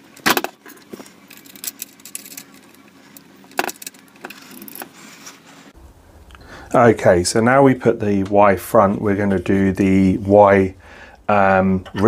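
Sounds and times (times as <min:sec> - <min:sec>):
small metal parts clicking and clinking: 0:00.2 - 0:05.0.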